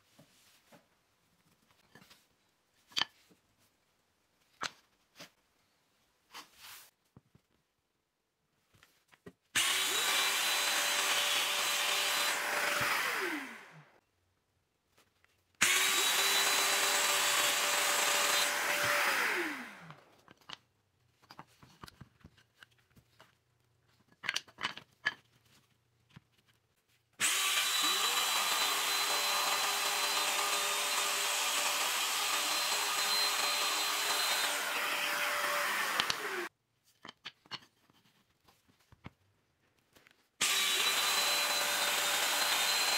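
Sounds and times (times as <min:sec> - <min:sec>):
power joiner cutting wood: 0:09.6 - 0:13.9, 0:15.6 - 0:20.1, 0:27.2 - 0:36.5, 0:40.4 - 0:42.9.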